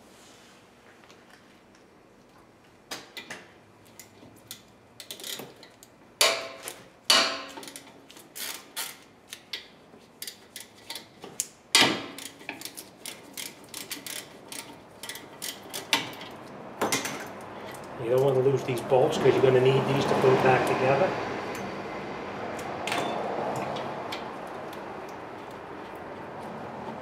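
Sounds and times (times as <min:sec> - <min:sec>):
ratchet wrench clicking: 0:12.2 - 0:16.3.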